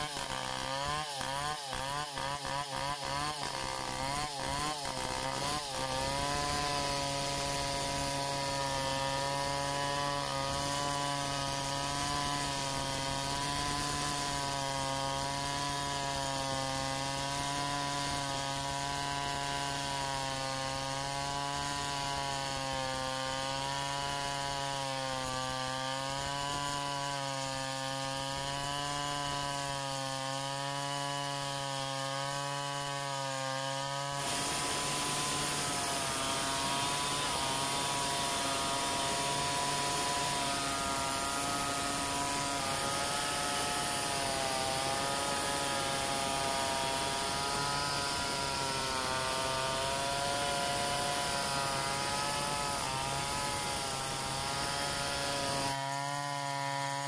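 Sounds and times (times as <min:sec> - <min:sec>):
chainsaw cutting log: 0:00.0 - 0:57.0
wood chips flying: 0:34.2 - 0:53.8.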